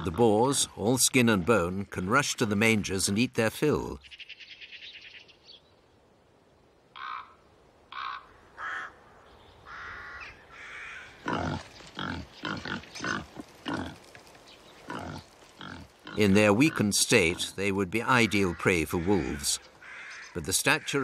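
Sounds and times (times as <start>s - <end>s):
wild boar grunting: 10.6s - 14.1s, 14.8s - 17.6s.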